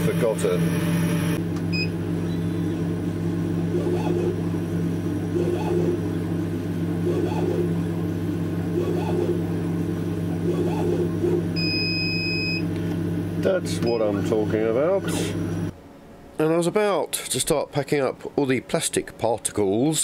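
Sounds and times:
laser cutter humming: 0:00.0 - 0:15.8
motors whirring: 0:03.6 - 0:04.6, 0:05.2 - 0:07.9, 0:08.6 - 0:12.9.

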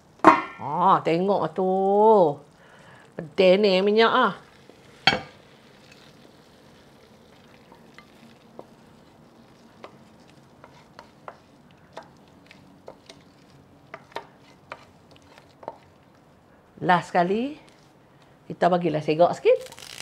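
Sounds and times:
spoon scraping food from pan: 0:04.6 - 0:16.0.

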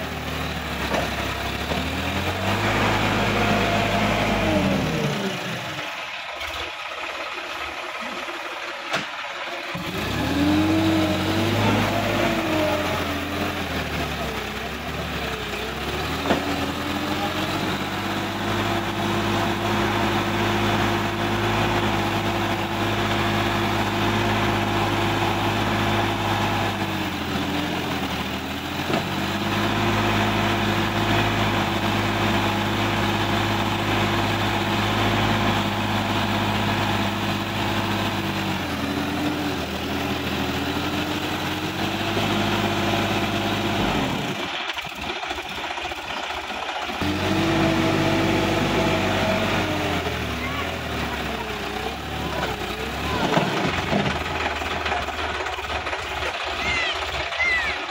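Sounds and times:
tractor diesel engine under load: 0:00.0 - 0:57.9.

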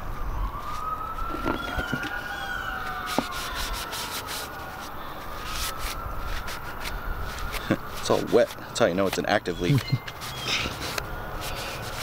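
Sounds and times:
distant siren wailing: 0:00.0 - 0:12.0
rag wiping metal plate: 0:03.0 - 0:12.0.

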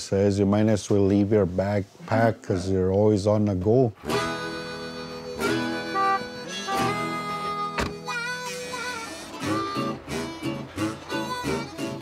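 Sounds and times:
guitar: 0:03.6 - 0:12.0
harmonica-like reed melody: 0:04.0 - 0:12.0.

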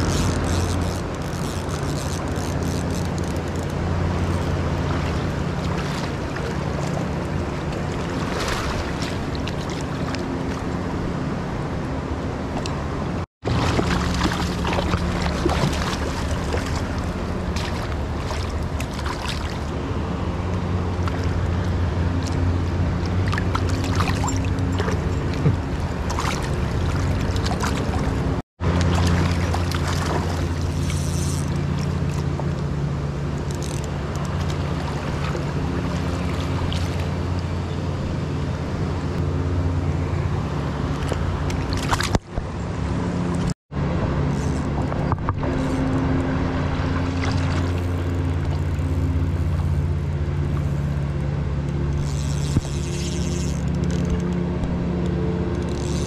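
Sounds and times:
steady low hum: 0:00.0 - 0:56.0
fish splashing in water: 0:07.7 - 0:10.3, 0:13.5 - 0:19.8, 0:23.0 - 0:32.3.

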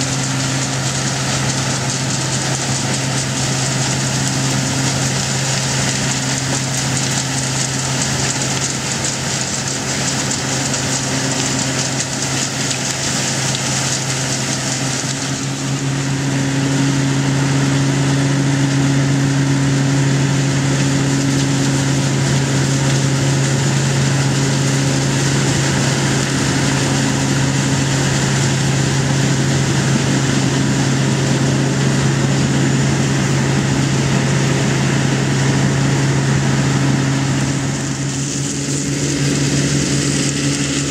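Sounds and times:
dense rushing noise: 0:00.0 - 0:40.9
harvest machine engine running: 0:00.0 - 0:40.9.

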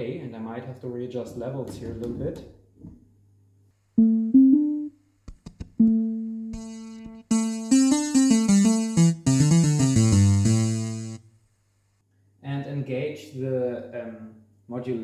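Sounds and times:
electronic organ plucked notes: 0:04.0 - 0:04.9, 0:05.8 - 0:11.2
organ quick run of notes: 0:06.6 - 0:11.2.

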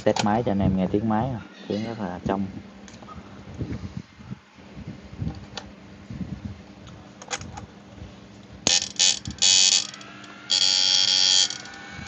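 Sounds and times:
high-pitched electrical buzz: 0:08.6 - 0:12.0.

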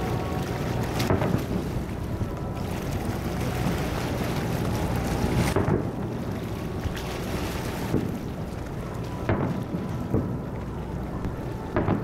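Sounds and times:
low background rumble: 0:00.0 - 0:12.0.

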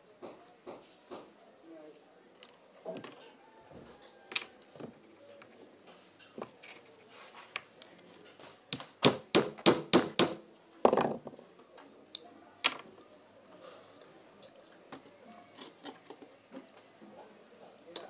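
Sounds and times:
hammer tapping a nail: 0:09.0 - 0:10.4.

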